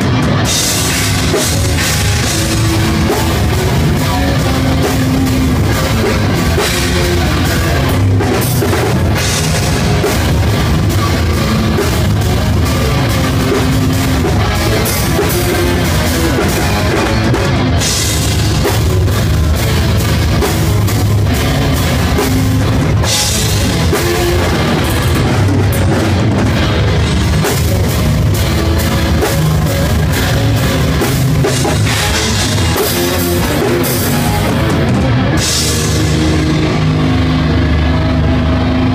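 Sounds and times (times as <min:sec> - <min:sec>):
dense drumming with cymbals: 0:00.0 - 0:38.9
distorted electric guitars: 0:00.0 - 0:38.9.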